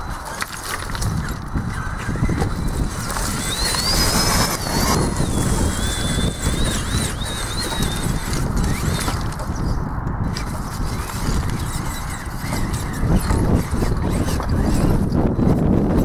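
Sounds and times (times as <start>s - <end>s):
constant low rumble: 0.0s - 16.0s
electric motor and gearbox whining: 0.0s - 16.0s.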